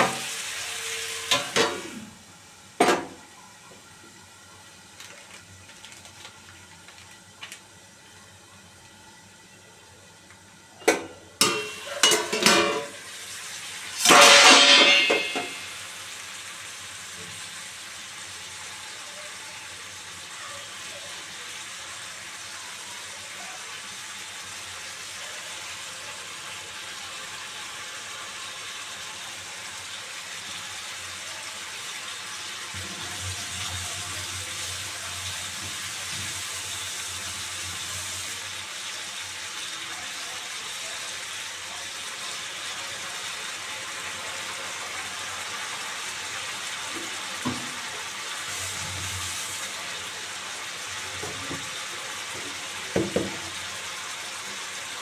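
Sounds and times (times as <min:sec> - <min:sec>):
food sizzling in pan: 0:00.0 - 0:55.0
metal lid clattering: 0:11.4 - 0:12.9, 0:14.0 - 0:15.6.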